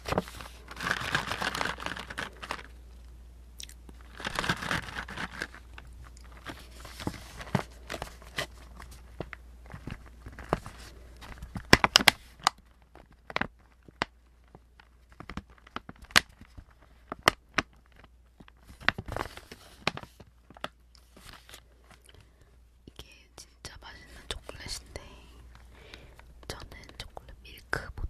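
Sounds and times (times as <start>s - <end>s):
plastic pouch crinkling: 0.0s - 2.9s, 3.8s - 22.4s.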